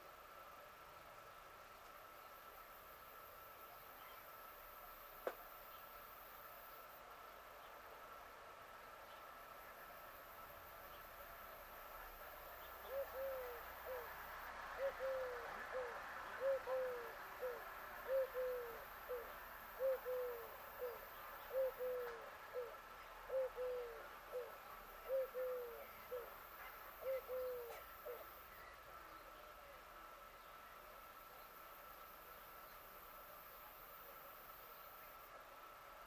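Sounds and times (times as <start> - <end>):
dove cooing: 12.6 - 28.4.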